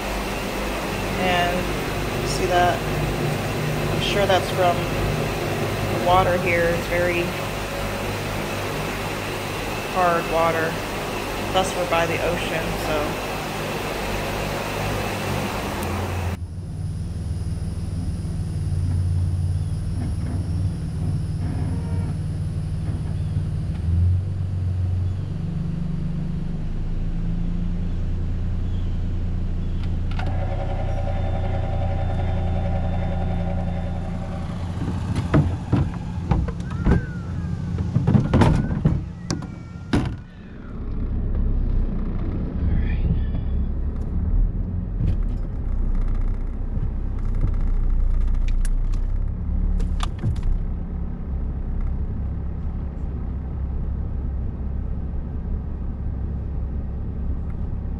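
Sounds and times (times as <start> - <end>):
vehicle driving rumble: 0.0 - 57.9.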